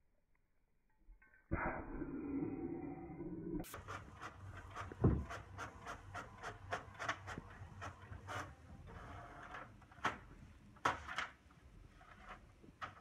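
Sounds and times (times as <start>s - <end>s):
printer whirring: 3.7s - 10.4s
paper feed clacks: 3.7s - 13.0s.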